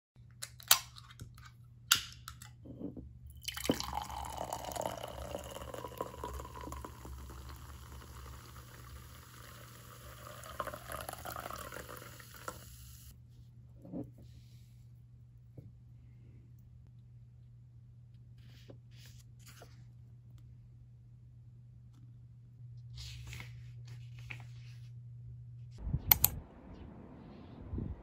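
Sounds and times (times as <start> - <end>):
fizzy drink pouring into glass: 3.4 - 13.1
sharp clicks: 26.1 - 26.4.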